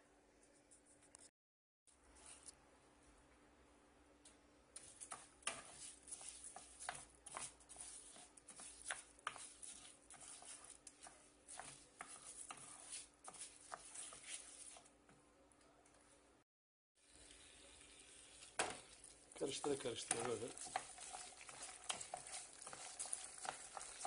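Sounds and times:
wooden spoon scraping rice in pan: 0:04.8 - 0:14.9, 0:19.4 - 0:24.0.

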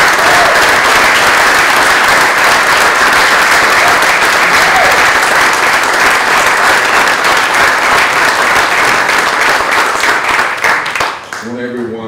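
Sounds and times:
crowd applauding: 0:00.0 - 0:11.8.

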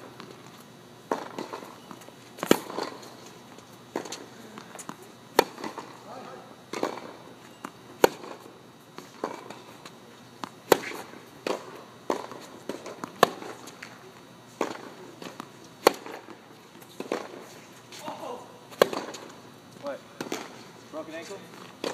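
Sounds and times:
tennis racket hitting ball: 0:01.1 - 0:03.1, 0:03.9 - 0:06.1, 0:06.7 - 0:09.6, 0:10.4 - 0:14.0, 0:14.6 - 0:19.3, 0:20.2 - 0:20.6
tennis ball bouncing: 0:01.1 - 0:06.1, 0:06.7 - 0:09.8, 0:10.4 - 0:14.0, 0:14.6 - 0:19.4, 0:20.2 - 0:20.6, 0:21.6 - 0:21.9.

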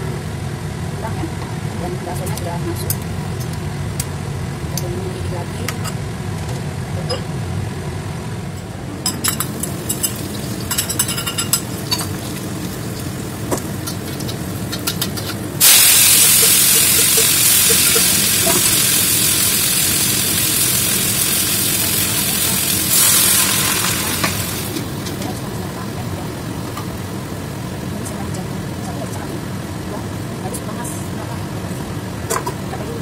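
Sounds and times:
garlic frying in a wok: 0:09.2 - 0:32.9
loud sizzle of greens in oil: 0:09.4 - 0:28.0.

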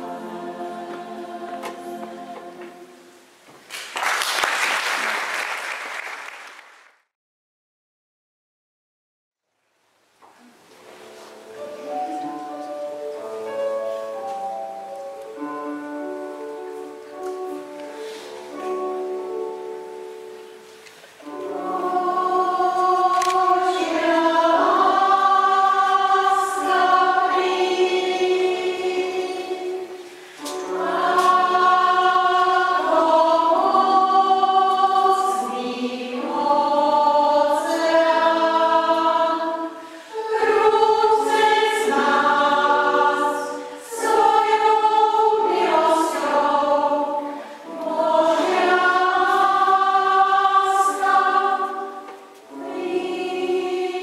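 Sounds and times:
choir singing: 0:00.0 - 0:03.4, 0:15.3 - 0:54.0.

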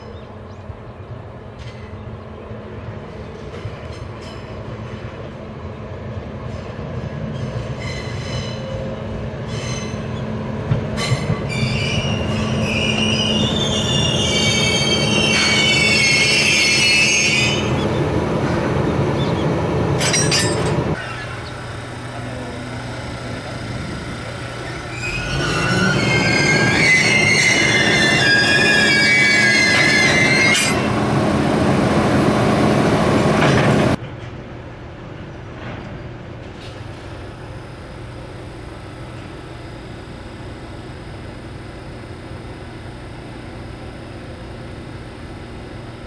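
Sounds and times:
locomotive engine hum: 0:00.0 - 0:46.0
locomotive wheels squealing: 0:07.3 - 0:10.3, 0:11.0 - 0:18.0, 0:20.0 - 0:21.8, 0:24.5 - 0:30.9.

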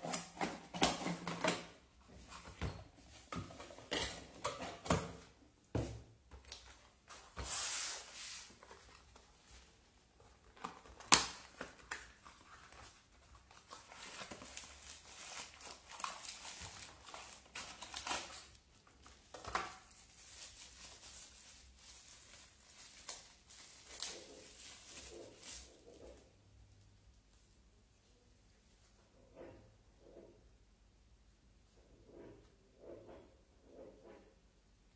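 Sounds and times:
cardboard and plastic rustling: 0:00.0 - 0:26.4.

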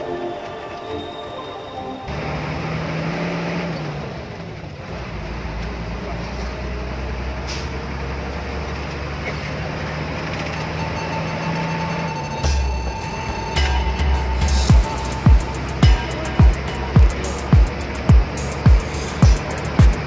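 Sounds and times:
background music: 0:00.0 - 0:03.7, 0:10.3 - 0:20.0
bus engine droning: 0:00.0 - 0:20.0
road and tyre noise: 0:00.0 - 0:20.0.

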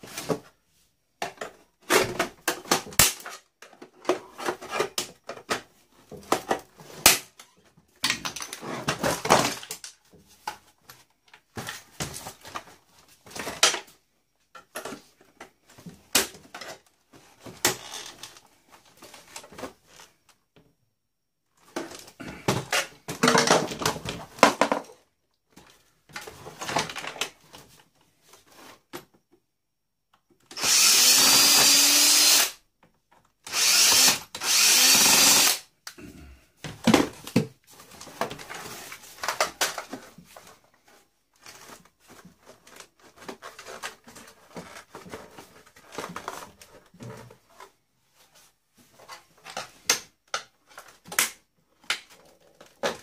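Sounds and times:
plastic and metal parts rattling: 0:21.6 - 0:25.0, 0:36.7 - 0:47.8.

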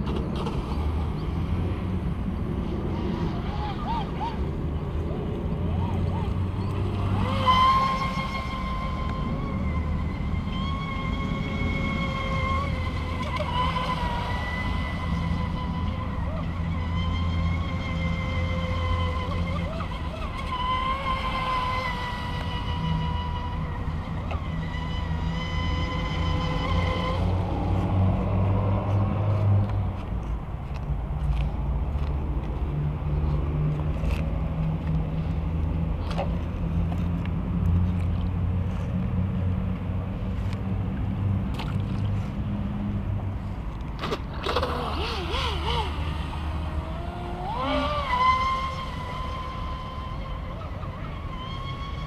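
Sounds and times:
low engine-like hum: 0:00.0 - 0:52.0
toy boat motor whining: 0:02.7 - 0:29.6, 0:44.0 - 0:52.0.

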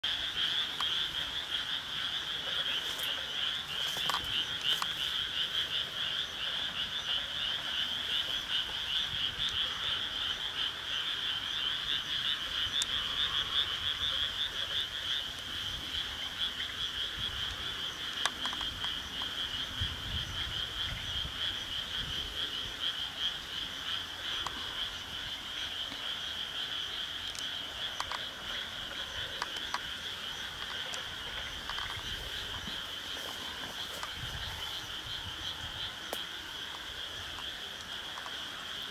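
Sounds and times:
frogs calling: 0:00.0 - 0:38.9
faint clicks: 0:27.3 - 0:28.3.

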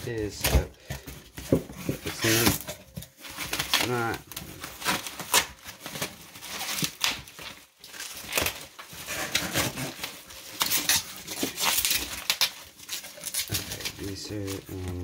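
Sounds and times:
plastic packing crinkling: 0:00.0 - 0:15.0
cardboard flaps scraping: 0:01.3 - 0:04.2.

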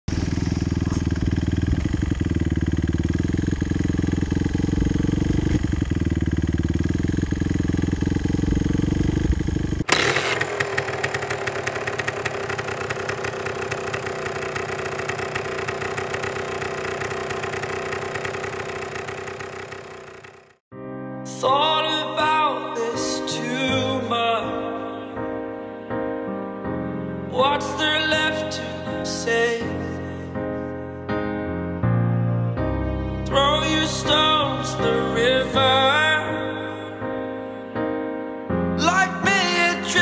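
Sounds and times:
dirt bike engine running: 0:00.1 - 0:20.6.

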